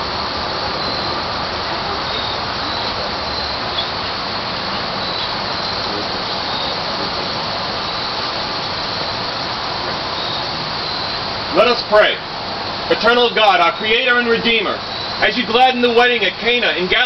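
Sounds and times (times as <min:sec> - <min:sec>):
steady background hiss: 0:00.0 - 0:17.0
faint high chirps: 0:00.7 - 0:09.2, 0:10.1 - 0:11.8.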